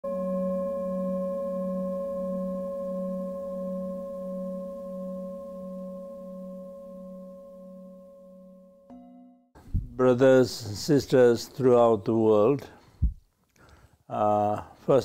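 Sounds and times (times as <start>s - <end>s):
singing bowl ringing: 0.0s - 9.6s.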